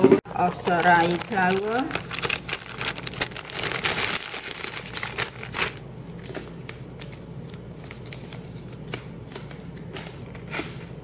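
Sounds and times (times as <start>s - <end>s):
paper bag crinkling: 0.4s - 8.9s.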